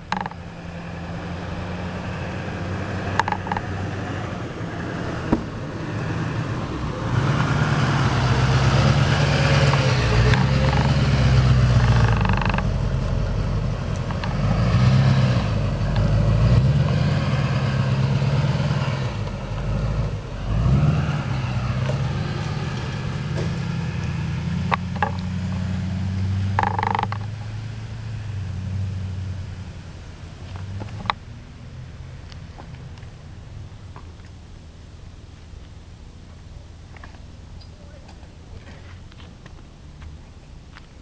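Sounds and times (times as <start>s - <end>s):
pickup truck engine under load: 0.0s - 34.5s.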